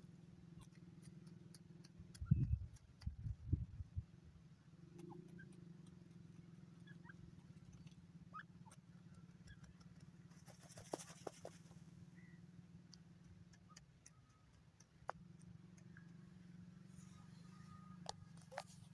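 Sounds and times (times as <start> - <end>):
low background hum: 0.0 - 18.9
faint short chirps: 16.8 - 18.6.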